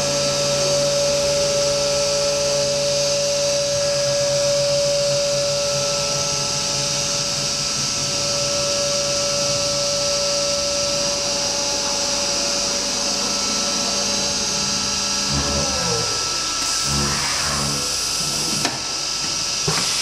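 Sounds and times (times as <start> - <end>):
router spindle whining: 3.8 - 19.2
low pulsing: 4.0 - 18.4.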